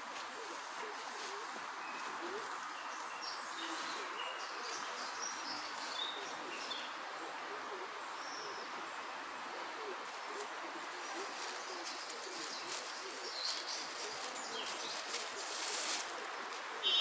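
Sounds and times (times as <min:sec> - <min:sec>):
bird low call: 0:16.7 - 0:17.0.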